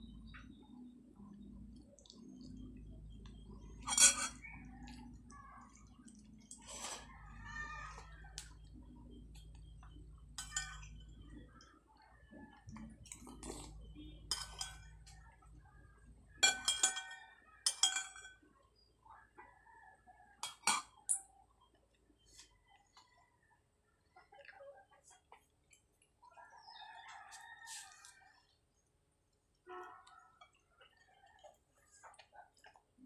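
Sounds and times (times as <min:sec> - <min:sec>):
clinks of eating from a plate: 0:03.3 - 0:05.3, 0:09.2 - 0:11.8, 0:12.4 - 0:15.6, 0:16.3 - 0:18.6, 0:20.4 - 0:21.3.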